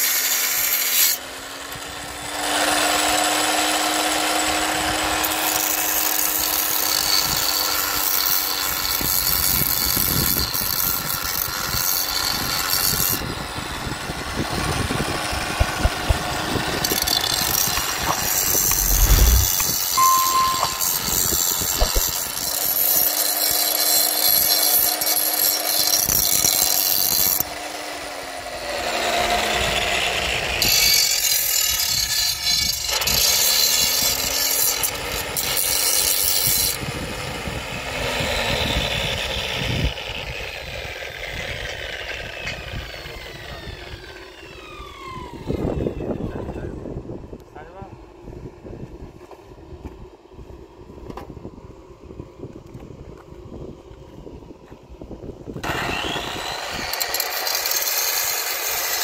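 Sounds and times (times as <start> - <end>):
power tool cutting: 0.0 - 36.8, 37.8 - 45.8, 55.6 - 59.0.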